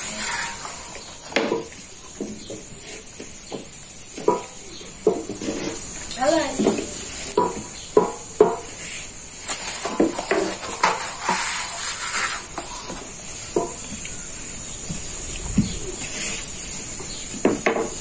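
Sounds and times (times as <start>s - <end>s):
rolling pin knocking on griddle: 0.3s - 2.7s, 3.4s - 5.8s, 6.5s - 8.7s, 9.8s - 11.5s, 13.6s - 13.8s, 17.3s - 18.0s
flatbread sheet rustling: 8.7s - 13.2s.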